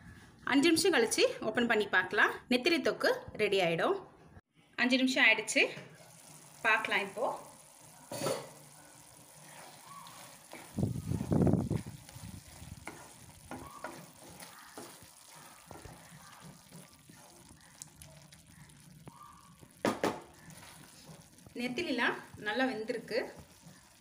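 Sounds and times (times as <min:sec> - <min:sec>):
gravy sizzling: 0:05.3 - 0:24.0
spatula scraping frying pan: 0:08.1 - 0:24.0
spatula knocking on pan: 0:19.8 - 0:20.5.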